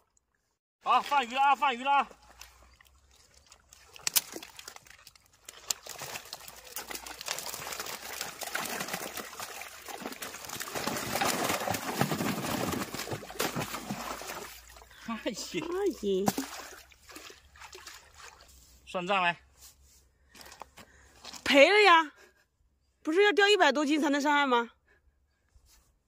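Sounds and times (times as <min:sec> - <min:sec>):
water sloshing and splashing: 0:00.0 - 0:18.9
fish thrashing in water: 0:02.1 - 0:18.6.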